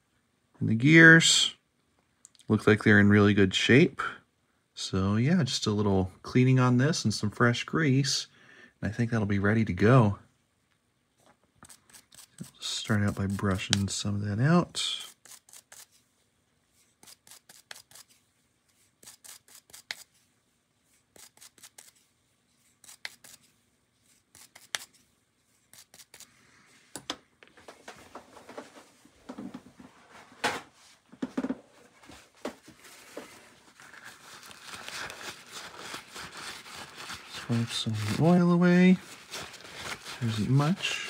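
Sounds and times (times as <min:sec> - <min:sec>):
small brush scrubbing metal gear: 0:11.6 - 0:13.8, 0:14.9 - 0:16.0, 0:16.8 - 0:18.2, 0:18.8 - 0:20.2, 0:21.0 - 0:23.5, 0:24.1 - 0:25.1, 0:25.7 - 0:26.3
paper towel crinkling and rubbing: 0:31.7 - 0:41.0.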